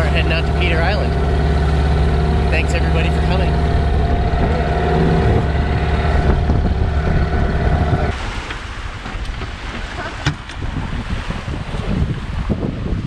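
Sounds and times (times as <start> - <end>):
outboard motor running: 0.0 - 12.5
wind on microphone: 0.0 - 13.0
small waves on a beach: 8.1 - 13.0.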